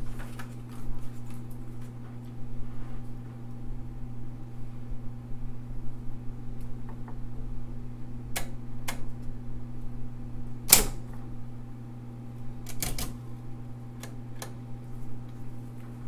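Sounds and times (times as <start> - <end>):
typewriter motor humming: 10.7 - 11.0, 12.6 - 13.2
typewriter keys clacking: 12.7 - 13.1.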